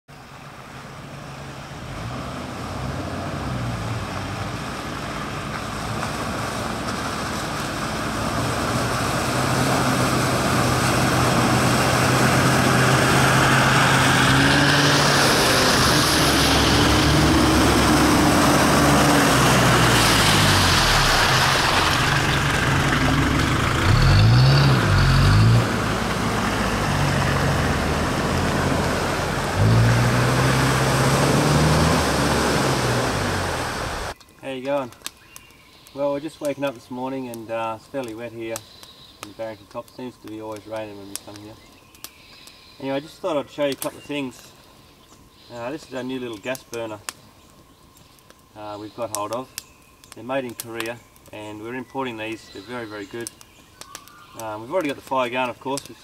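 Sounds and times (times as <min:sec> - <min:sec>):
off-road vehicle engines: 0:00.1 - 0:35.1, 0:35.8 - 0:56.0
tyres through wet mud: 0:00.2 - 0:44.8, 0:45.4 - 0:56.0
engine revving: 0:01.8 - 0:34.2.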